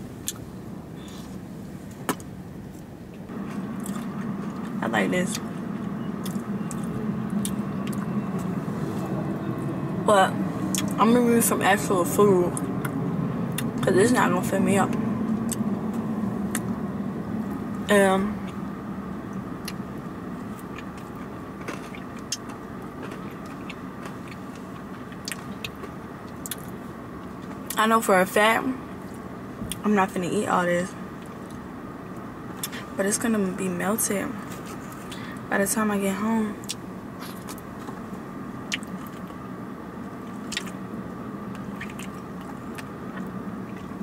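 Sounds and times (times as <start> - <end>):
car cabin hum: 0.0 - 44.0
person chewing food: 2.8 - 4.8, 6.2 - 8.5, 19.6 - 26.8, 40.3 - 40.8, 41.5 - 44.0.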